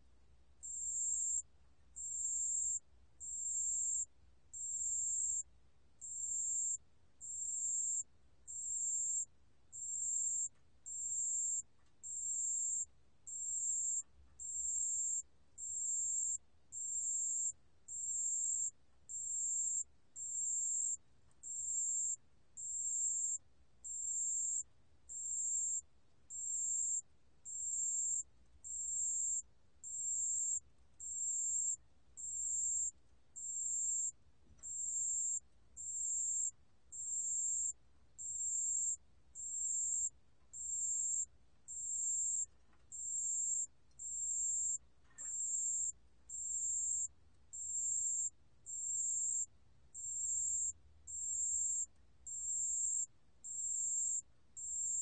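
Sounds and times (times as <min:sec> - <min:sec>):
cricket singing: 0:00.6 - 0:01.4, 0:02.0 - 0:05.4, 0:06.0 - 0:55.0.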